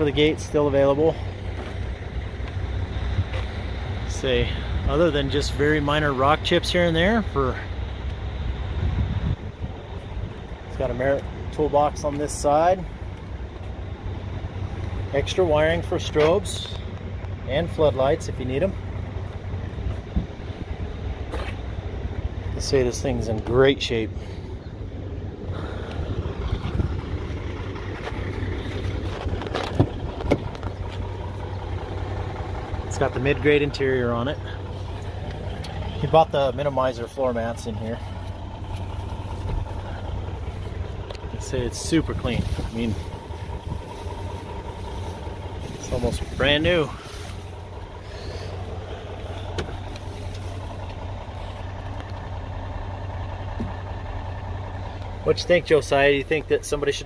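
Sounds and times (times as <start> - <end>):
diesel truck engine idling: 0.0 - 57.0
truck cab door opening: 29.2 - 31.1, 49.4 - 50.1.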